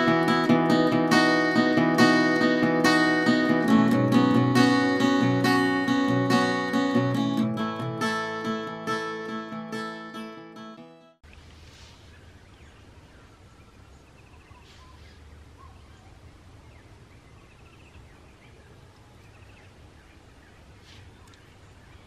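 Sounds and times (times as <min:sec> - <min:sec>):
bird calls: 0:11.8 - 0:22.0.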